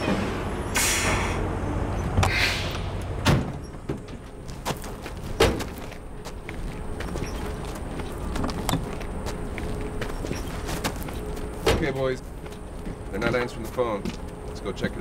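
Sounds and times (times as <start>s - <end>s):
truck engine running: 0.0s - 15.0s
air brakes hissing: 0.7s - 1.6s, 2.2s - 3.0s
clicks and footsteps: 3.0s - 14.6s
truck door slams: 3.2s - 4.0s.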